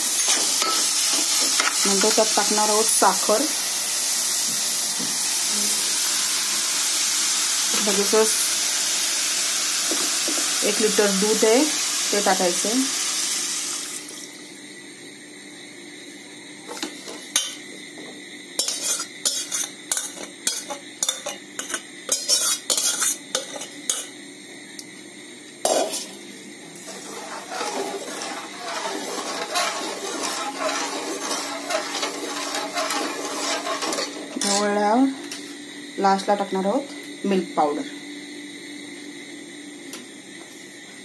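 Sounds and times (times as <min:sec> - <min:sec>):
metal spoon scraping bowl: 0:18.6 - 0:24.0, 0:26.9 - 0:34.7
spoon stirring mixture in pot: 0:26.8 - 0:34.6.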